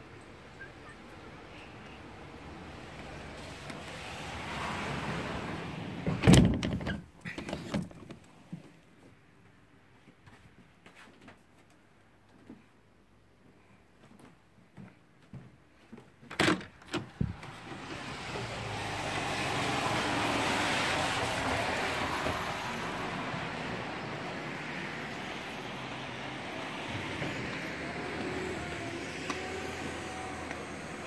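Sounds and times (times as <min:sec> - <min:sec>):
traffic on wet road: 0:00.0 - 0:06.4, 0:17.3 - 0:31.0.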